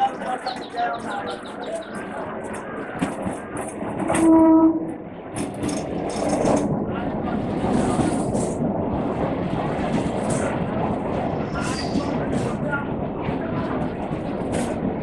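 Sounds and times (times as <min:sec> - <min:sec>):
train running rumble: 0:00.0 - 0:15.0
train horn blasts: 0:04.1 - 0:05.0.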